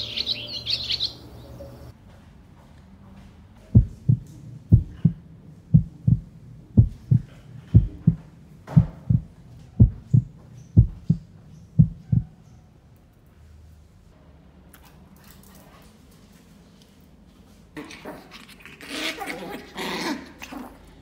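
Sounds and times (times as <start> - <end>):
heartbeat lub-dub: 3.7 - 12.3.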